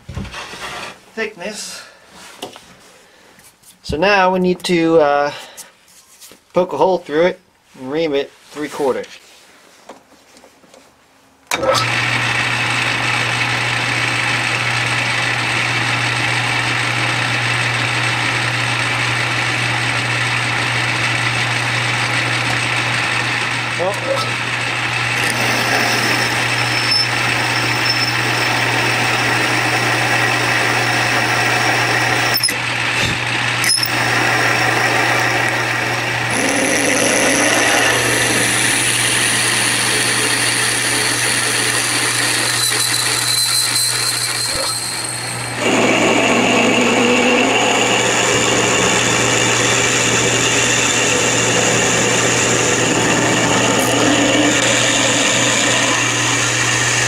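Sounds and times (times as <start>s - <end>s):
lathe motor hum: 11.8s - 57.0s
high whine of drill cutting: 22.2s - 32.9s, 33.5s - 57.0s.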